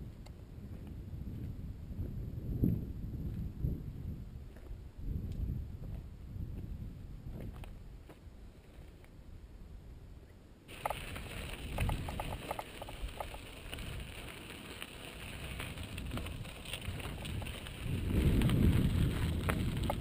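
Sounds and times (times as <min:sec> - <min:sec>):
wind buffeting microphone: 0:00.0 - 0:08.1, 0:10.7 - 0:20.0
bike tyres crunching on gravel: 0:10.7 - 0:20.0.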